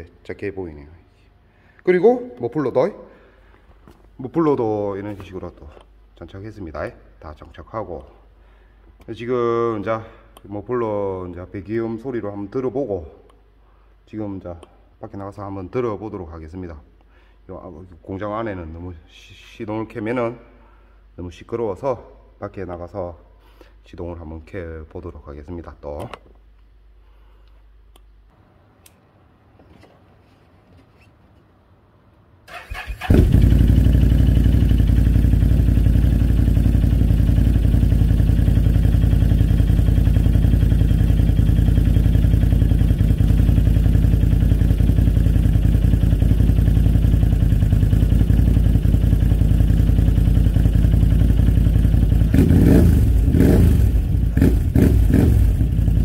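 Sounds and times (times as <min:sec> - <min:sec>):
atv engine starting and idling: 0:32.5 - 0:56.0.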